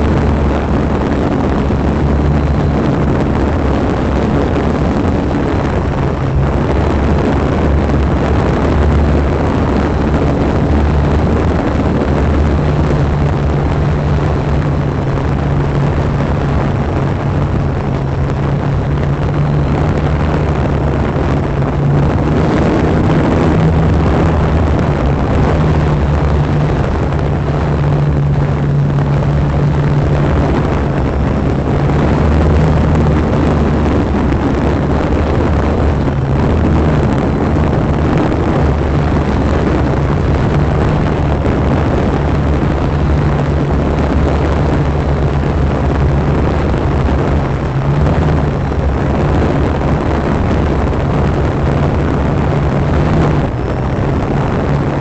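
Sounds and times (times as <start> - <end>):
drone propellers humming: 0.0 - 55.0.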